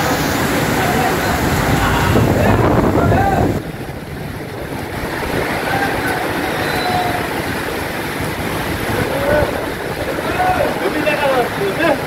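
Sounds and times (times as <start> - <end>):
heavy rain falling: 0.0 - 12.0
low rumble: 0.2 - 6.4.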